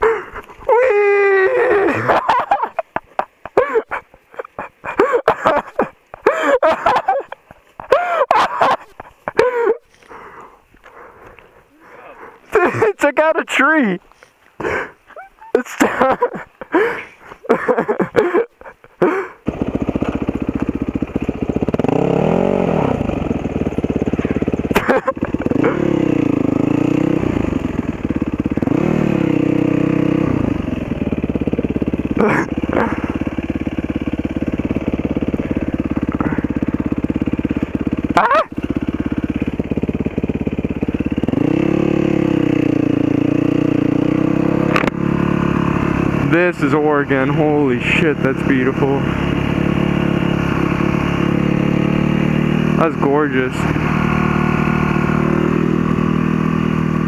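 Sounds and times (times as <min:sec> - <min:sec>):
dirt bike engine idling: 0:00.0 - 0:57.0
engine revving: 0:19.4 - 0:57.0.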